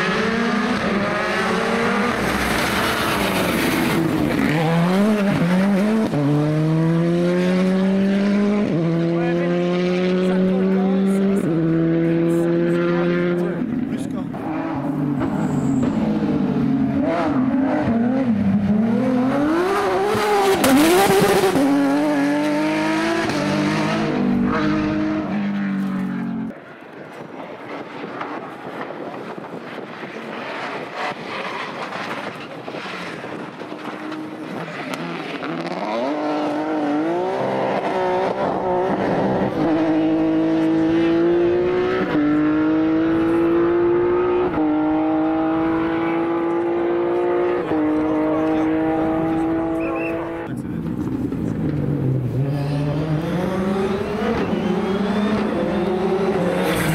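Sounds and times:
rally car engines revving: 0:00.0 - 0:56.9
car engine upshifting: 0:27.7 - 0:56.9.

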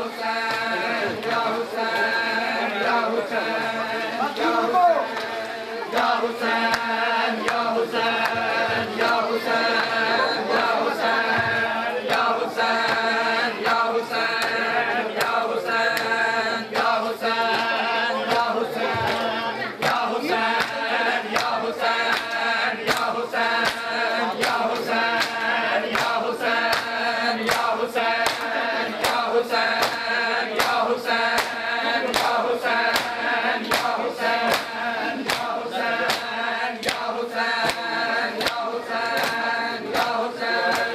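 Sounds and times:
men chanting in unison: 0:00.0 - 0:40.9
hands slapping chests: 0:18.3 - 0:40.9.

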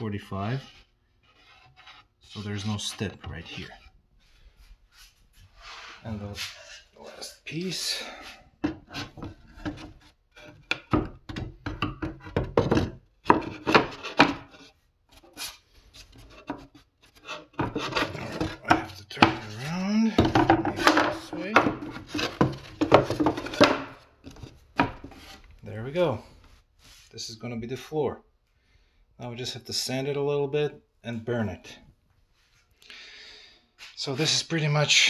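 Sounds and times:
boards rubbing together: 0:00.4 - 0:06.9, 0:07.8 - 0:25.5
wooden board knocks: 0:20.2 - 0:25.3.

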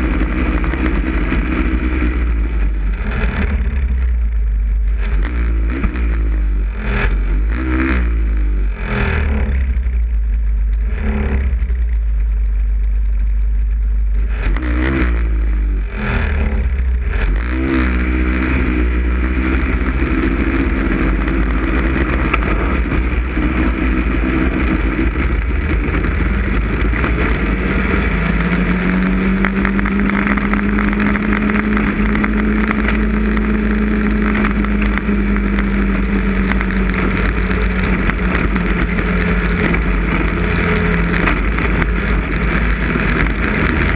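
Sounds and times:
snowmobile engine running: 0:00.0 - 0:43.9
wind rumble on microphone: 0:00.0 - 0:43.9.

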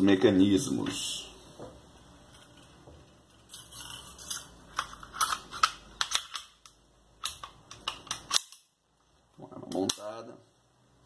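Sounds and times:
metallic clicks of pistol parts: 0:04.2 - 0:08.7.

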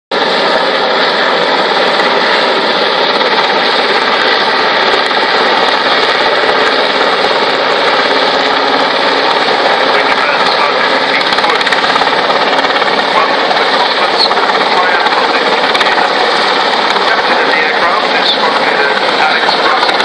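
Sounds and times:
helicopter hovering: 0:00.1 - 0:20.0.

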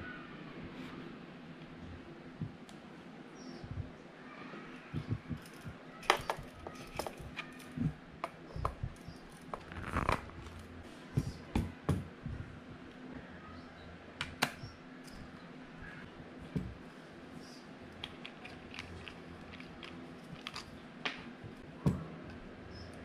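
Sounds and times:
parts clicking and knocking on table: 0:05.4 - 0:09.7.

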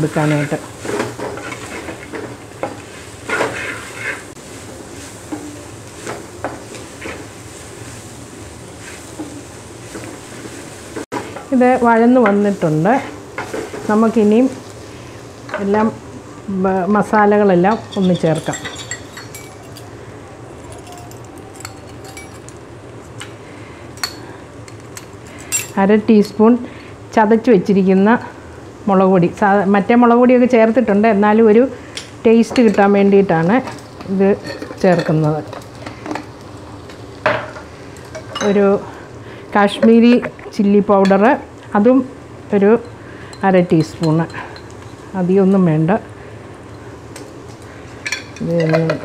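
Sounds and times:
onions sizzling in oil: 0:00.0 - 0:49.0
spoon clinking against glass jar: 0:17.7 - 0:19.9, 0:20.7 - 0:22.5.

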